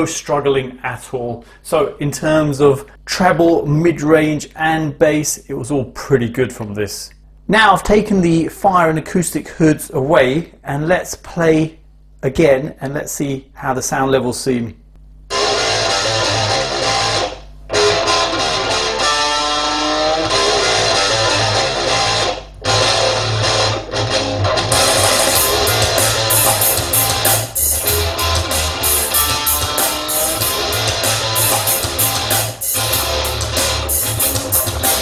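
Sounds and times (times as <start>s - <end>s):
instrumental rock music: 15.3s - 35.0s.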